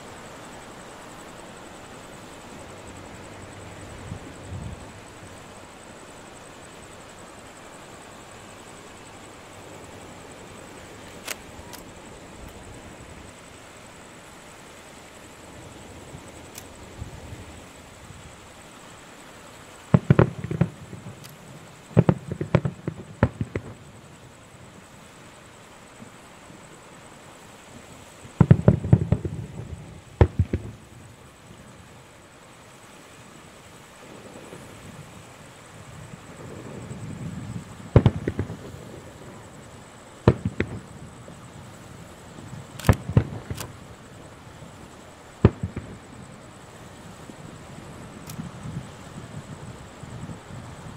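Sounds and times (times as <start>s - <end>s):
faint steady rush: 0.0s - 50.9s
firework shells bursting: 19.9s - 24.0s, 28.3s - 30.9s, 37.9s - 38.8s, 40.2s - 41.0s, 42.6s - 43.9s, 45.4s - 46.2s.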